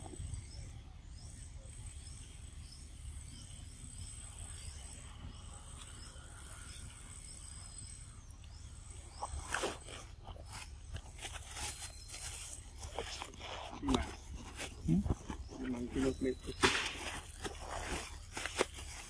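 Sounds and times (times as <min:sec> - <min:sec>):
steady high whine: 0:00.0 - 0:19.0
monkeys gnawing crunch: 0:09.2 - 0:19.0.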